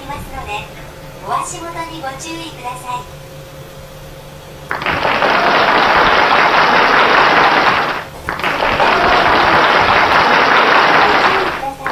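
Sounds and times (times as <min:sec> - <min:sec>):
heavy rain on roof: 0:04.7 - 0:11.9.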